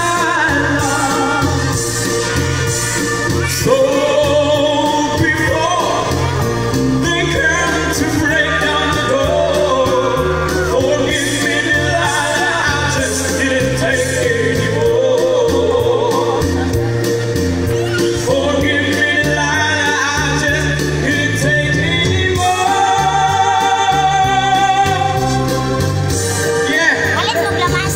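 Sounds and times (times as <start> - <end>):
backing track with bass line: 0.0 - 27.9
man singing: 0.0 - 27.9.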